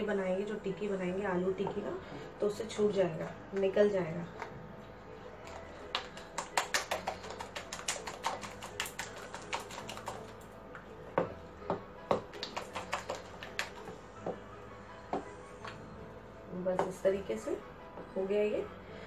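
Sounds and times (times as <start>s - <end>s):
batter beaten in a bowl: 5.4s - 14.5s.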